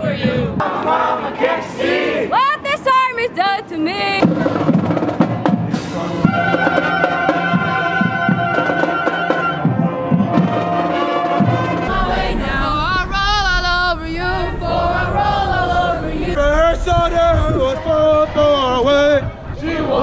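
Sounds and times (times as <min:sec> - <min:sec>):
marching band playing: 0:04.0 - 0:12.9
beating drums: 0:04.2 - 0:15.8
flutes and clarinets: 0:06.1 - 0:11.9
low rumble: 0:11.6 - 0:20.0.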